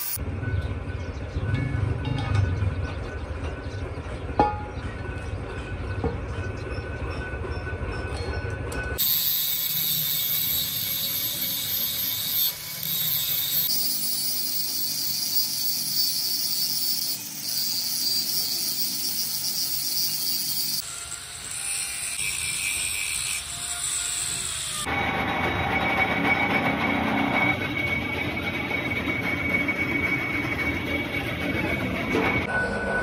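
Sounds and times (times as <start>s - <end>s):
angle grinder grinding steel: 0.0s - 0.2s, 9.0s - 32.9s.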